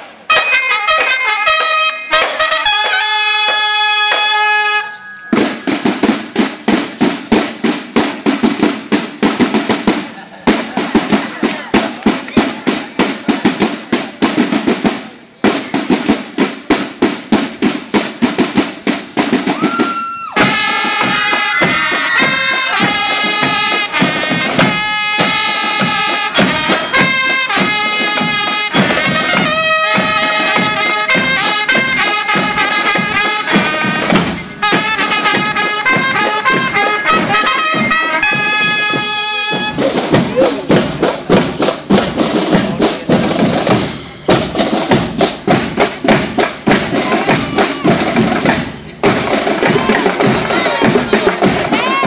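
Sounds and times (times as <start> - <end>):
brass playing march tune: 0.2 - 10.0, 20.4 - 52.0
marching drums cadence: 0.2 - 52.0.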